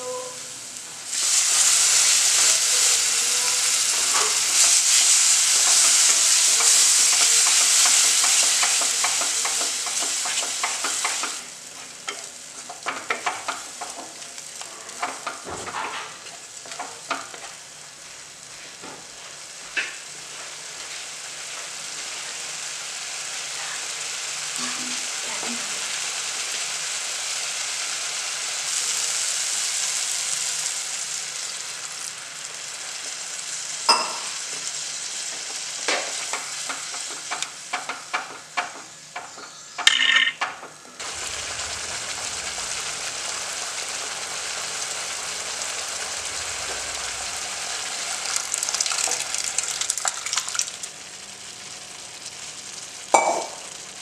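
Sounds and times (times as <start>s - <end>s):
paste sizzling in a pan: 0.0s - 39.8s, 40.9s - 54.0s
spatula scraping and tapping pan: 6.6s - 11.4s, 12.0s - 14.2s.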